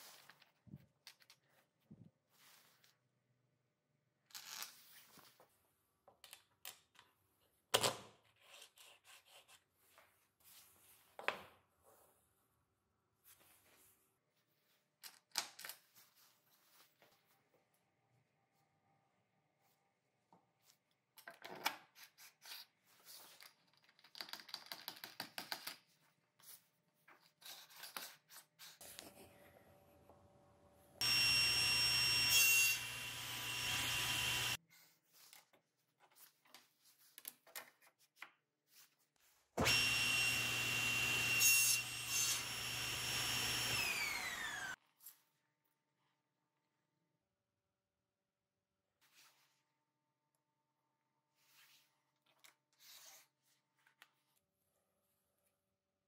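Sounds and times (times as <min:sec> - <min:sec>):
table saw cutting wood: 0:31.0 - 0:34.6, 0:39.6 - 0:44.8.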